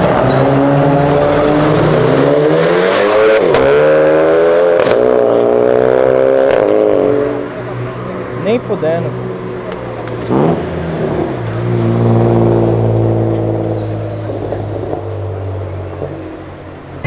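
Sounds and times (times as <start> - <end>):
car engine revving and pulling away: 0.0 - 17.0.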